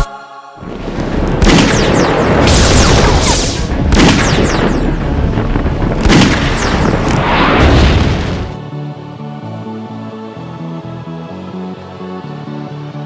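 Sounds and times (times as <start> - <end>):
explosion booms: 0.6 - 8.6.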